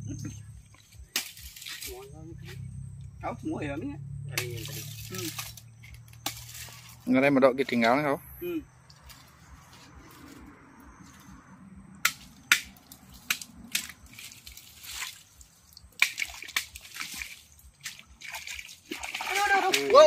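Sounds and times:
machete cutting palm stems: 0.8s - 2.6s, 4.4s - 7.1s, 12.0s - 15.1s, 16.0s - 18.0s
rustle of fronds: 4.6s - 7.8s, 8.9s - 11.5s, 12.2s - 20.0s.

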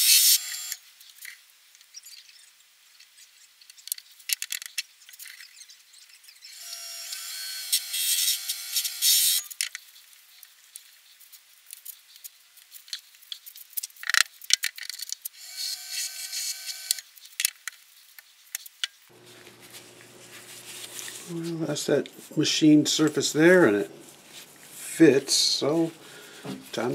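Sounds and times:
small motor whining: 0.0s - 0.8s, 6.4s - 9.5s, 15.4s - 17.0s.

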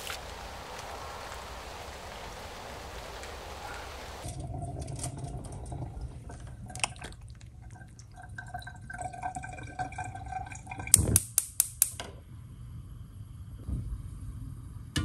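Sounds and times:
water splashing and dripping: 0.0s - 11.4s.

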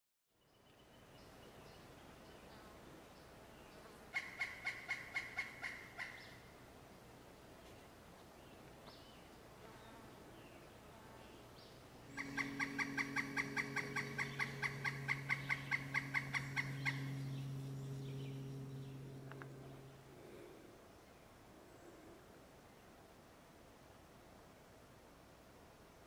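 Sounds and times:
low steady hum: 0.4s - 26.0s
woodpecker calling: 4.1s - 6.5s, 12.1s - 19.8s.

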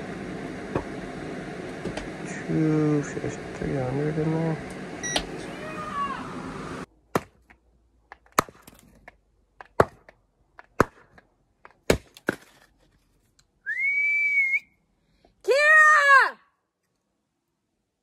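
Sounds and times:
high steady whistle: 13.6s - 14.8s
whistled call: 13.6s - 14.8s.

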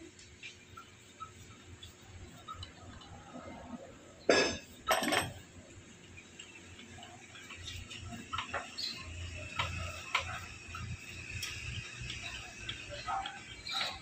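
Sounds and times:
metal tools clinking: 4.3s - 5.4s.

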